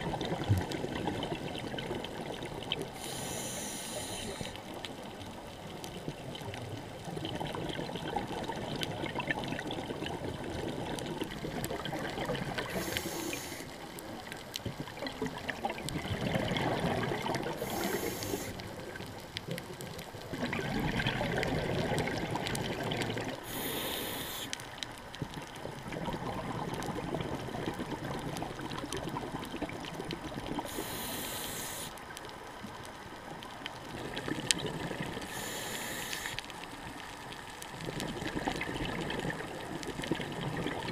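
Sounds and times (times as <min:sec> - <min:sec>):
exhaled bubbles rushing: 0:00.0 - 0:02.9, 0:07.0 - 0:13.0, 0:14.7 - 0:18.1, 0:20.2 - 0:23.4, 0:25.6 - 0:30.7, 0:33.9 - 0:35.3, 0:37.7 - 0:40.9
regulator inhalation hiss: 0:03.0 - 0:04.6, 0:12.7 - 0:13.8, 0:17.6 - 0:18.6, 0:23.4 - 0:24.6, 0:30.6 - 0:32.0, 0:35.3 - 0:36.4.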